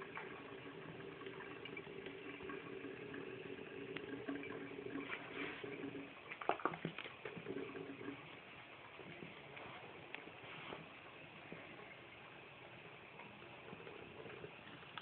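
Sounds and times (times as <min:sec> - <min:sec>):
cat splashing water: 0:00.0 - 0:08.2
faucet water running into sink: 0:00.0 - 0:08.2.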